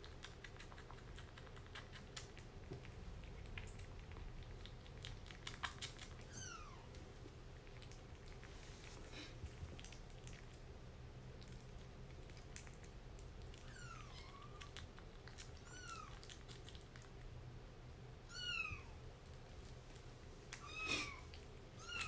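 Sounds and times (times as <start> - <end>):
kitten eating from bowl: 0.0 - 22.0
kitten mewing: 20.6 - 22.0.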